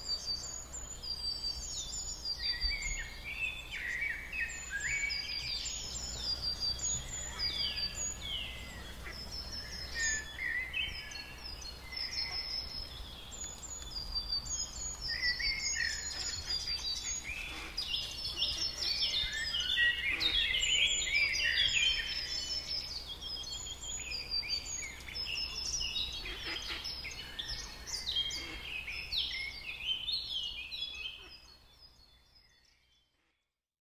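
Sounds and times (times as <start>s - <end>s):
songbirds chirping and singing: 0.0s - 33.2s.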